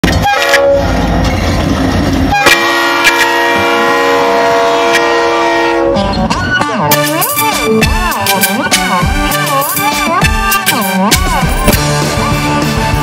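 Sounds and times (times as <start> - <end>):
locomotive air horn: 0.0 - 1.2, 2.2 - 6.3, 6.9 - 11.6
diesel locomotives rumbling past: 0.0 - 6.3.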